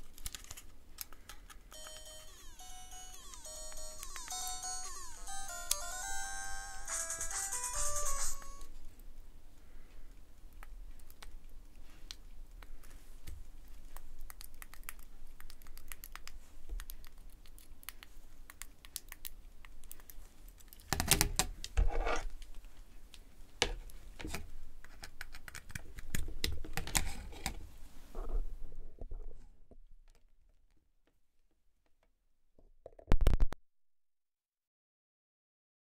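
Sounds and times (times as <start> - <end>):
fingers clicking small buttons: 1.7 - 6.2
rustling and scraping: 21.8 - 23.0.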